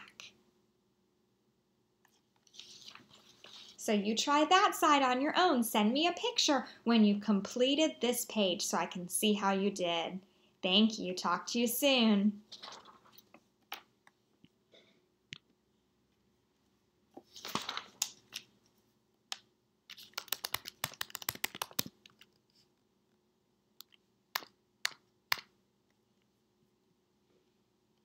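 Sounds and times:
paper rustle: 2.4 - 3.8, 12.5 - 13.4, 17.2 - 18.4
rapid clicks and taps: 19.3 - 22.3.

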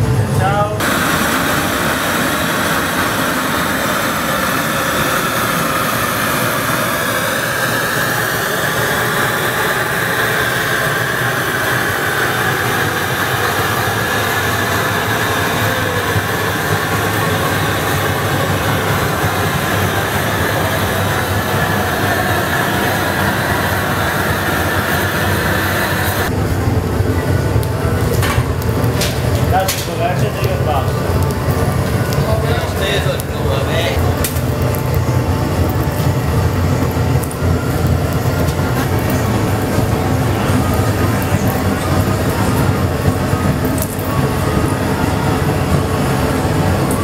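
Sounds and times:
gas torch hissing: 0.1 - 47.0.

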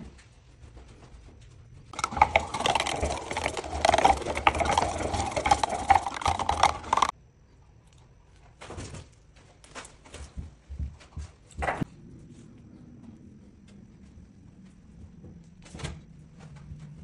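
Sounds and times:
stick stirring resin in metal tin: 2.0 - 7.1.

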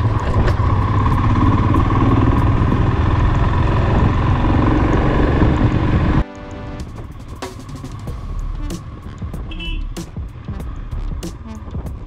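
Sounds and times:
wind rush: 0.0 - 6.2
motorcycle engine running: 0.0 - 12.0
music: 6.2 - 12.0.

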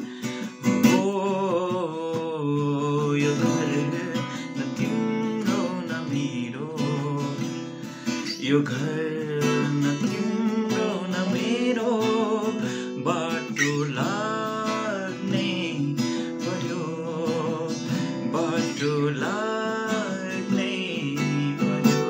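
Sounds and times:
acoustic guitar strumming: 0.0 - 22.0
man singing: 0.0 - 22.0.

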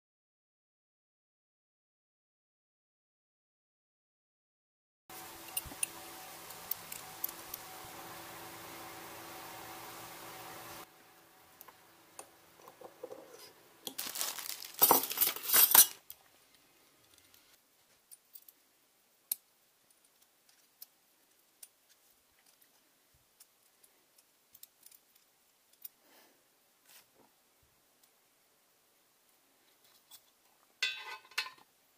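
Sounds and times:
small metal parts clinking: 13.9 - 16.1.

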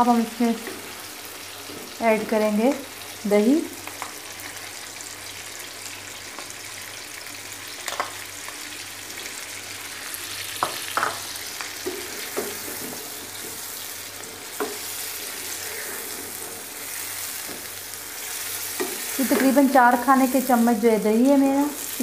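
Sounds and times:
chicken sizzling in hot oil: 0.0 - 22.0.

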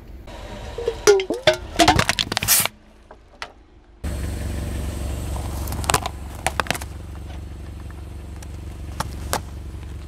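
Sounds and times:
objects crunching under car tyre: 0.8 - 3.5, 5.3 - 10.0.

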